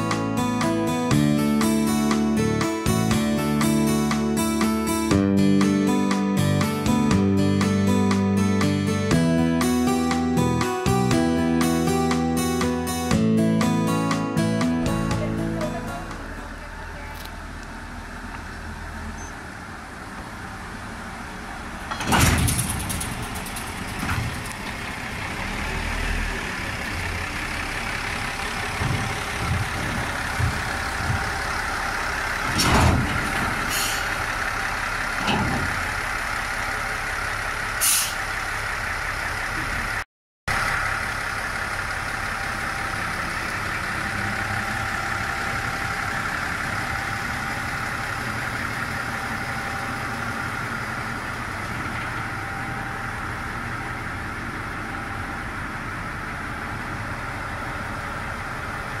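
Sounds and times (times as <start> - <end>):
diesel railcar idling: 0.0 - 59.0
metal knocks and clanks: 28.7 - 31.5, 32.5 - 33.7, 35.2 - 35.8.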